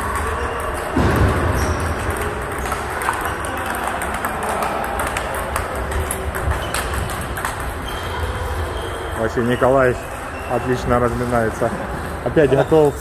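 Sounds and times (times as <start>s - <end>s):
hall background noise: 0.0s - 13.0s
table tennis balls clicking: 0.0s - 13.0s.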